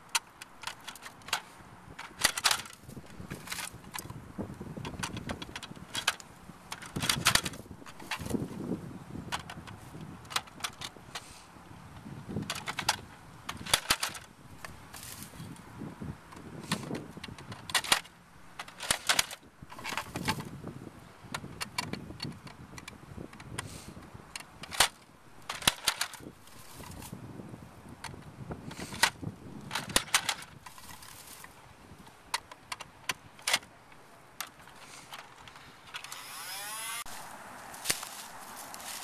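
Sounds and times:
plastic clicks and clatter: 0.0s - 4.2s, 4.8s - 8.6s, 9.3s - 11.3s, 12.4s - 15.6s, 16.3s - 20.6s, 21.3s - 23.7s, 24.3s - 27.1s, 28.0s - 37.0s
rustle of dry grass: 14.0s - 17.3s, 25.8s - 32.3s, 34.6s - 39.0s.

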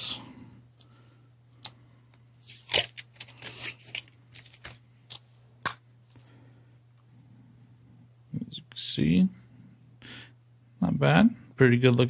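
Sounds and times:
plastic packaging clicks and crinkles: 2.4s - 5.8s.

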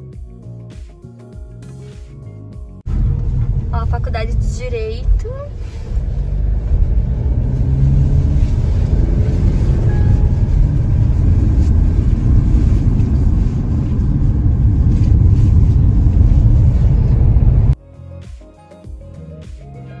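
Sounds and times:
car road and engine rumble: 2.8s - 17.8s.

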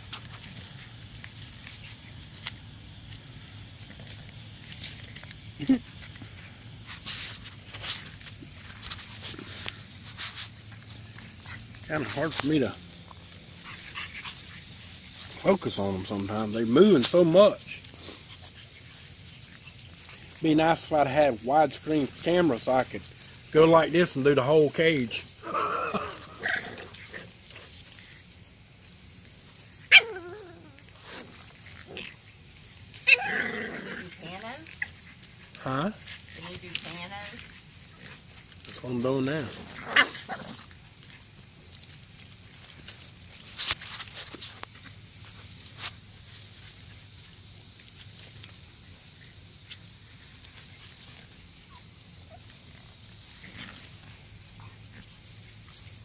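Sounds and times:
puppies scuffling on grass: 0.0s - 56.0s
puppy yelping: 29.8s - 31.0s, 32.9s - 35.0s, 39.8s - 40.6s.

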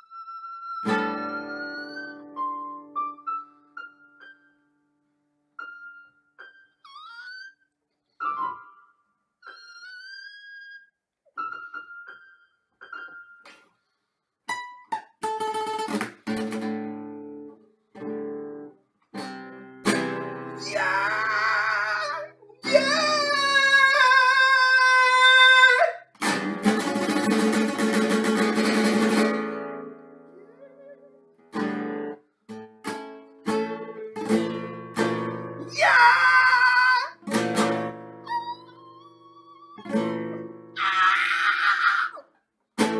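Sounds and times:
classical guitar: 0.0s - 4.7s, 14.5s - 21.3s, 22.2s - 23.9s, 26.1s - 35.7s, 37.2s - 40.8s
man singing with vibrato: 20.6s - 26.0s.

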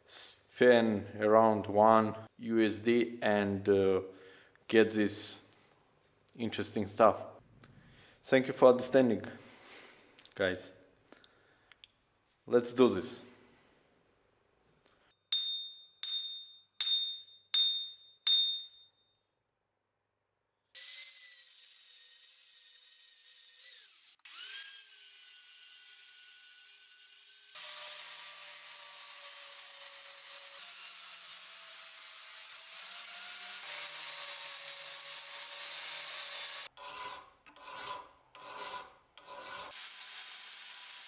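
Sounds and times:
ringing metallic strikes: 15.3s - 19.0s
angle grinder grinding steel: 20.8s - 41.0s.

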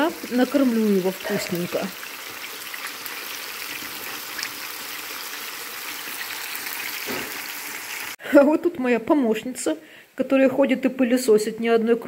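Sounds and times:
meat and onion sizzling in oil: 0.0s - 8.2s.

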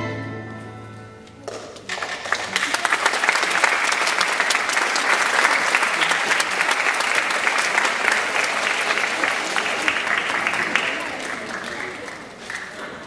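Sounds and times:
audience applause: 1.4s - 13.0s.

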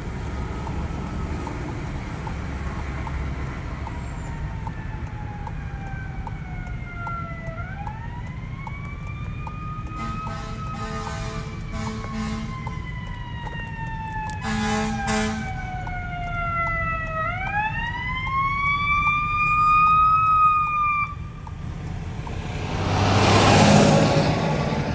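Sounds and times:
ambulance siren wailing: 3.1s - 24.9s
horn blasts: 9.9s - 12.6s, 14.4s - 15.6s
vehicle driving past: 21.6s - 24.9s.

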